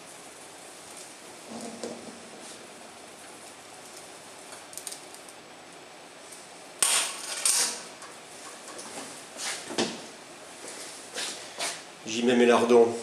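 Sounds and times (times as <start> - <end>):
metal kitchenware clattering: 6.8 - 8.8.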